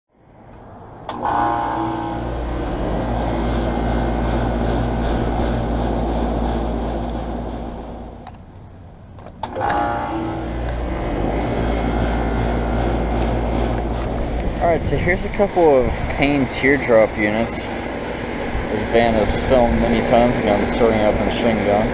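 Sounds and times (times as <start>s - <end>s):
compressor hum with fan: 0.2s - 21.9s
air conditioner switch click: 1.0s - 1.3s.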